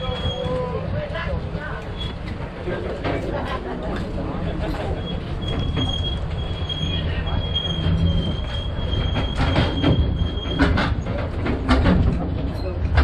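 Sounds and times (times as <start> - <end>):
trailer rattling: 0.0 - 13.0
tram rumbling: 0.0 - 13.0
thin high squeal: 5.0 - 10.6.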